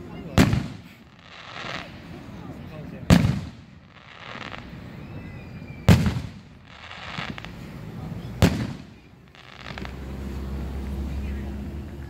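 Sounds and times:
firework shells booming: 0:00.2 - 0:02.1, 0:03.0 - 0:10.4.

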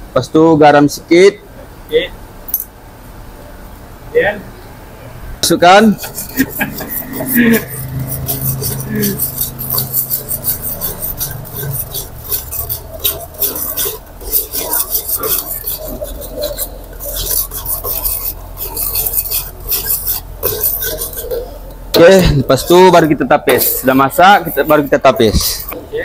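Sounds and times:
metal ladle scraping a wok: 0:06.0 - 0:25.8.

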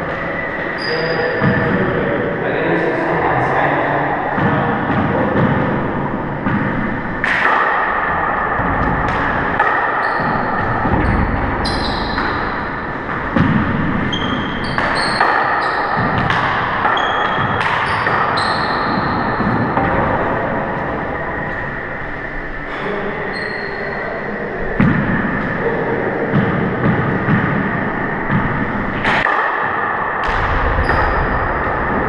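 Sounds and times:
sneaker squeaks on wooden floor: 0:00.7 - 0:01.7, 0:10.0 - 0:12.6, 0:14.0 - 0:19.8, 0:23.3 - 0:24.0.

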